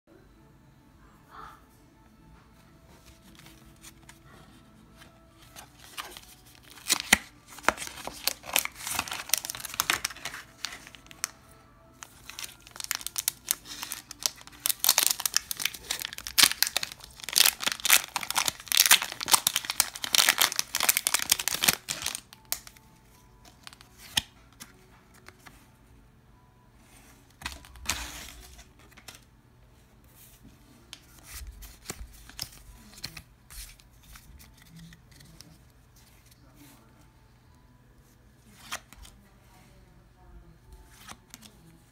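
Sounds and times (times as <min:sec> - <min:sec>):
cards clicking and rustling: 0:05.0 - 0:11.3, 0:12.0 - 0:22.8, 0:23.4 - 0:25.5, 0:27.3 - 0:29.2, 0:30.9 - 0:36.4
foil wrapper tearing and crinkling: 0:05.8 - 0:11.2, 0:12.1 - 0:22.8.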